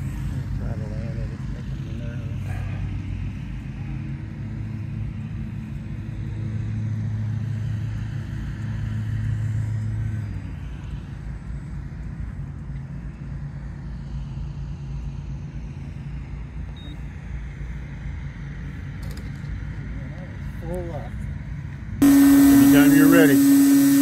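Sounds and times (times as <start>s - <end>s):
model airplane propeller drone: 0.0s - 24.0s.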